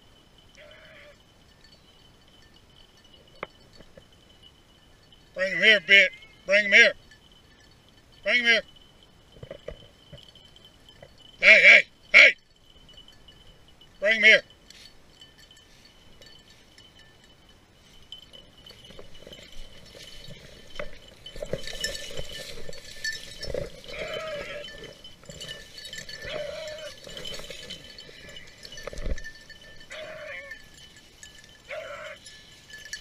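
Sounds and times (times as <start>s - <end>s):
dry grass and brush rustling: 0.0s - 33.0s
dogs whining: 26.0s - 27.4s, 29.8s - 30.6s, 31.7s - 32.3s.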